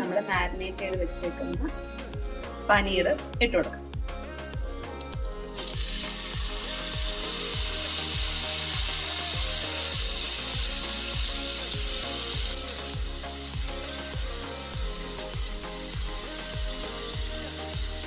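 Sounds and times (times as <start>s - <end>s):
background music with steady beat: 0.0s - 18.0s
paneer sizzling in butter and oil: 5.6s - 18.0s.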